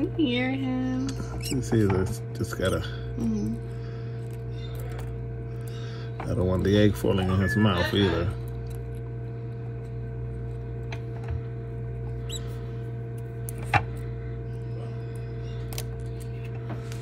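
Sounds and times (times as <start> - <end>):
incubator humming: 0.0 - 17.0.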